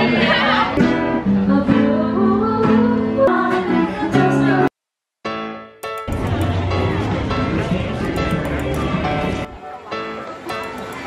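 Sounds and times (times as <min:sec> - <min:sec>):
acoustic guitar: 0:00.0 - 0:04.7.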